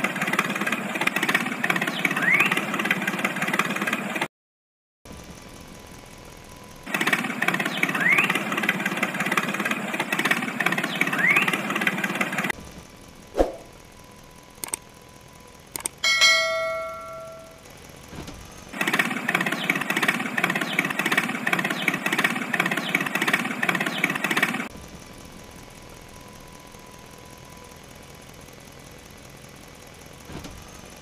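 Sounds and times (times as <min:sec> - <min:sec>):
toy tractor motor whirring: 0:06.7 - 0:13.2, 0:14.0 - 0:16.0, 0:18.6 - 0:24.8
bell-like ding: 0:16.0 - 0:17.6
thump: 0:30.3 - 0:30.6.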